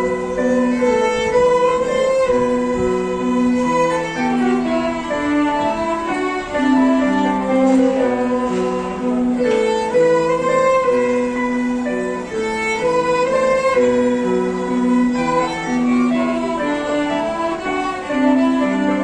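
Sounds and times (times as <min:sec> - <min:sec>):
digital piano accompaniment: 0:00.0 - 0:19.0
violins playing slow melody: 0:00.0 - 0:19.0.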